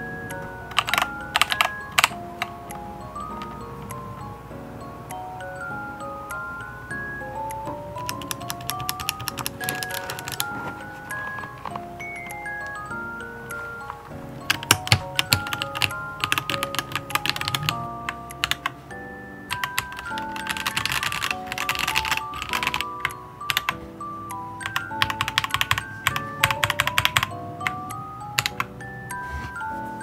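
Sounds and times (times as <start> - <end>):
light music with chime notes: 0.0 - 30.0
mechanical keyboard typing: 0.7 - 3.6, 8.0 - 11.9, 13.9 - 18.8, 19.5 - 23.8, 24.6 - 28.7.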